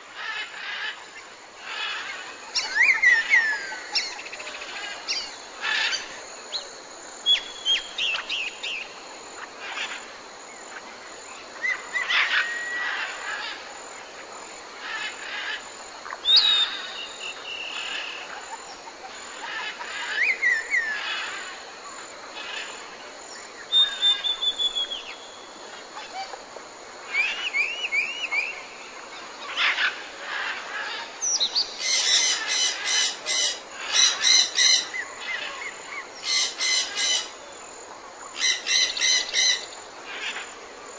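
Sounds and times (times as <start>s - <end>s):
wild birds singing and calling: 0.0s - 40.9s.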